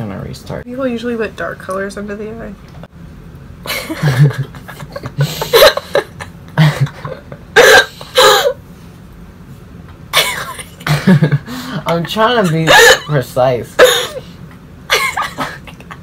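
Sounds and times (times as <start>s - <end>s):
young woman laughing: 3.6s - 8.5s, 10.2s - 13.1s, 14.9s - 16.0s.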